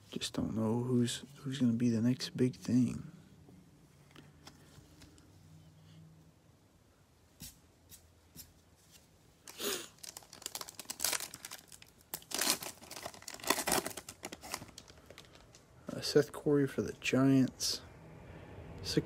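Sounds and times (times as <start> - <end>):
plastic wrapper tearing and crinkling: 9.5 - 15.6.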